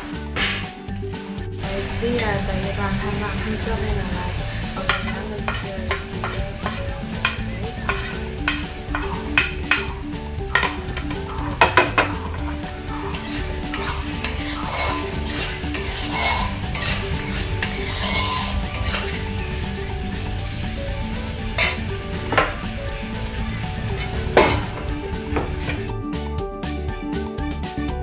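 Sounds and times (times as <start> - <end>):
meat sizzling in hot oil: 1.6 - 25.9
metal spoon scraping a wok: 4.4 - 25.9.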